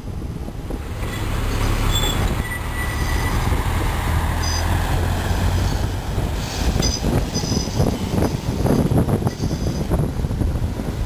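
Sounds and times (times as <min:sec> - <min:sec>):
tram wheels rumbling: 0:00.0 - 0:11.0
short high squeaks: 0:01.0 - 0:03.4, 0:04.4 - 0:04.8, 0:06.8 - 0:08.0, 0:09.2 - 0:09.9
high wheel squeal: 0:01.0 - 0:03.6, 0:04.3 - 0:10.0.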